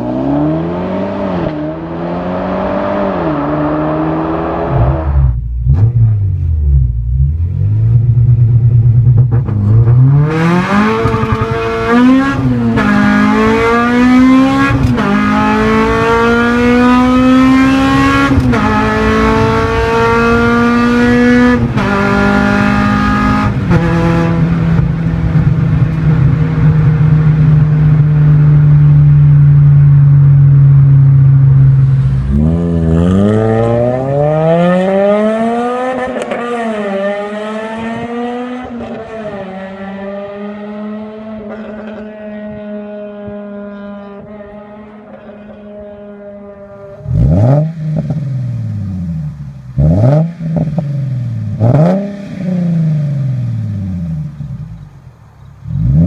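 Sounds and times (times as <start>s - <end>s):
car engine accelerating through shifts: 0.0s - 56.0s
second car engine revving: 0.0s - 56.0s.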